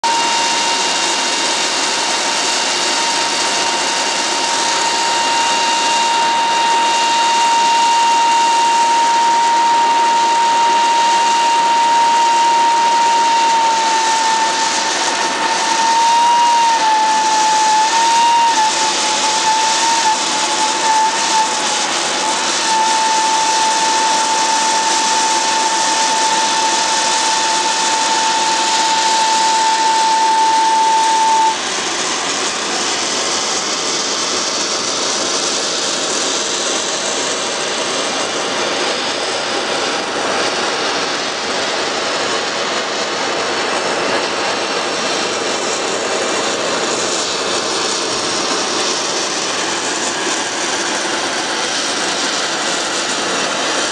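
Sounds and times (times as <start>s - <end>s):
high whistle: 0.0s - 37.4s
steam vent rushing hiss: 0.0s - 53.9s.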